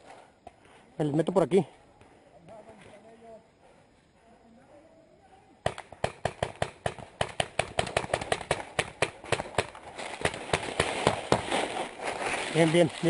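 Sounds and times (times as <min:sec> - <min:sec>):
paintball marker firing rapidly: 0:05.6 - 0:11.5.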